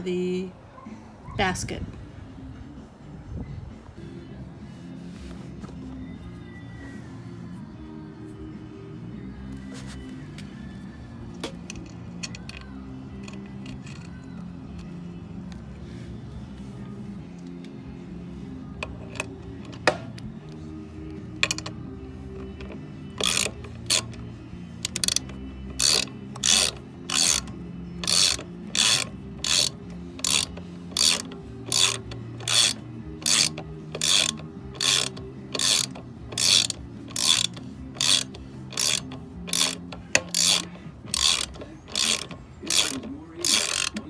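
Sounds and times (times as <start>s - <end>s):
ratchet wrench clicking: 11.2s - 15.0s, 18.8s - 44.0s.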